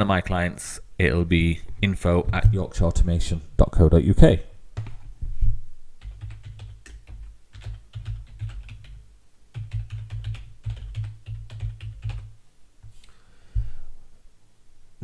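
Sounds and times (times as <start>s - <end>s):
keyboard typing: 4.8s - 5.0s, 6.0s - 12.4s.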